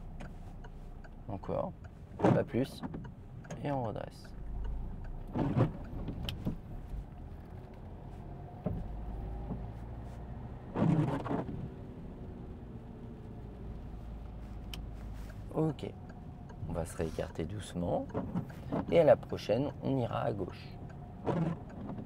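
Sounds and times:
car engine and tyres rumbling: 0.0s - 22.0s.

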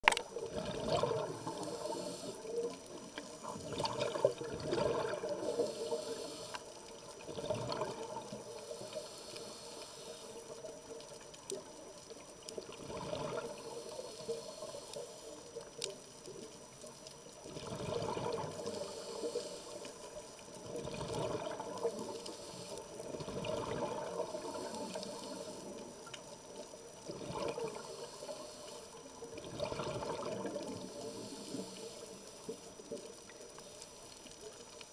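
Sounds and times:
exhaled bubbles underwater: 0.0s - 33.7s
scuba breathing through regulator: 1.2s - 2.6s, 5.3s - 6.7s, 8.6s - 10.4s, 13.4s - 15.3s, 18.6s - 20.0s, 21.9s - 22.9s, 24.2s - 25.8s, 27.6s - 29.0s, 30.8s - 32.2s.

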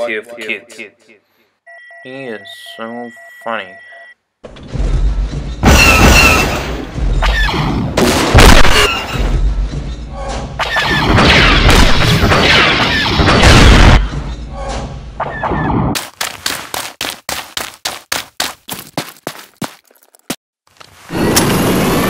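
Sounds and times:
loud explosions: 5.6s - 9.4s, 10.9s - 14.0s.

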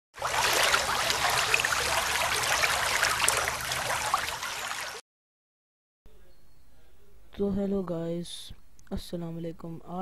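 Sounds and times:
water bubbling and trickling: 0.1s - 5.0s.

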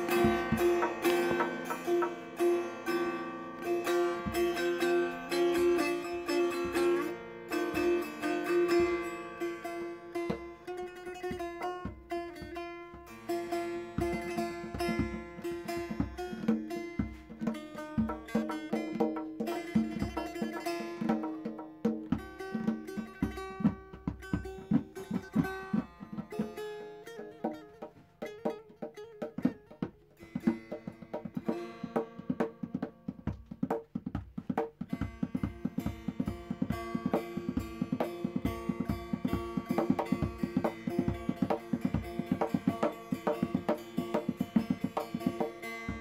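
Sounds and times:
steady percussion beat: 0.0s - 2.5s, 4.0s - 7.0s, 30.4s - 46.0s
plucked strings: 0.0s - 46.0s.

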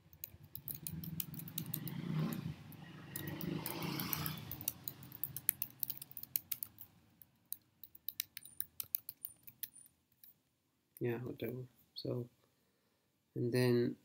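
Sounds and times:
keyboard typing: 0.0s - 10.3s.

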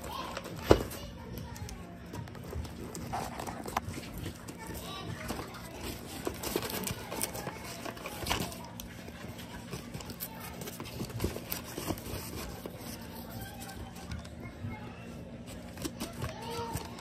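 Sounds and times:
cardboard tearing and crinkling: 2.3s - 14.0s, 15.5s - 17.0s.

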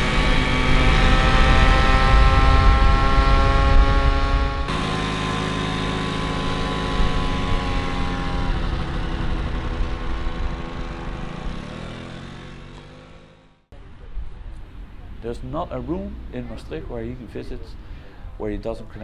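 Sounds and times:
scooter engine running: 0.0s - 14.1s.

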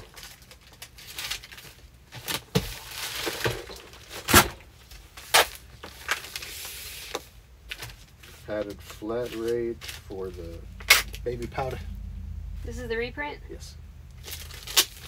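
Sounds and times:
packaging rustling and crinkling: 0.0s - 11.2s, 14.2s - 15.0s.

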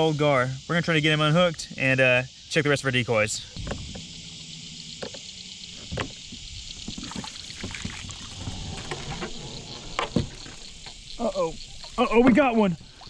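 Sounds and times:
insects chirring: 0.0s - 13.0s
light water sounds: 5.8s - 13.0s.

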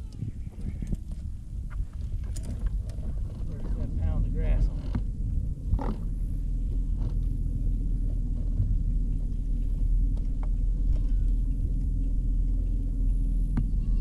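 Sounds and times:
outboard motor rumbling: 0.0s - 14.0s.

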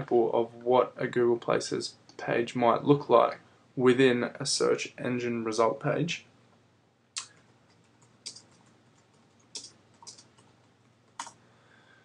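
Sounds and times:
faint keyboard keystrokes: 7.2s - 11.4s.

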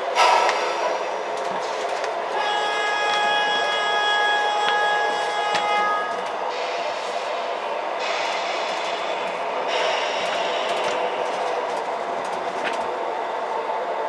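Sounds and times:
model trains running on track: 0.0s - 14.0s
train horn: 2.3s - 6.3s.

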